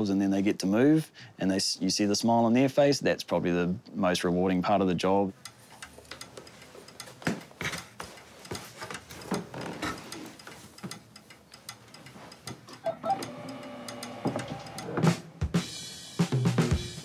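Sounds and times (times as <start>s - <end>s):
wheelchair clicks and knocks: 7.1s - 11.0s.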